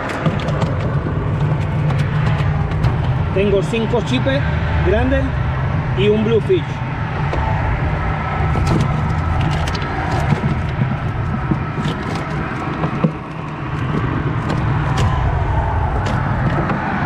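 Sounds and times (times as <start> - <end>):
road traffic rumble: 0.0 - 17.0
fish knocking in plastic cooler: 8.6 - 15.2.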